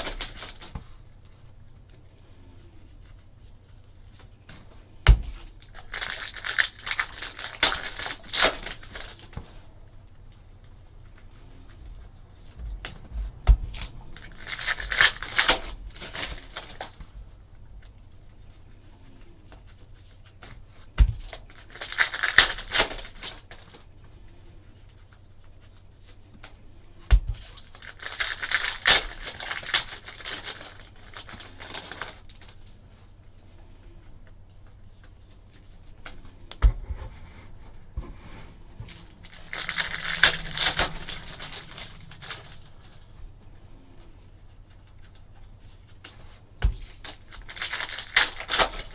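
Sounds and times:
foil wrappers tearing and crinkling: 0:00.0 - 0:00.8, 0:05.4 - 0:09.4, 0:13.8 - 0:17.0, 0:21.2 - 0:23.9, 0:27.3 - 0:32.8, 0:38.9 - 0:43.1, 0:46.8 - 0:48.9.

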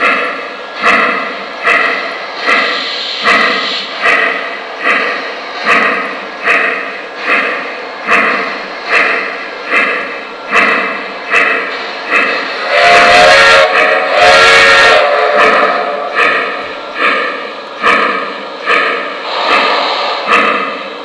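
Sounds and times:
steam chuffs: 0:00.0 - 0:21.0
steam whistle blasts: 0:12.6 - 0:16.0.

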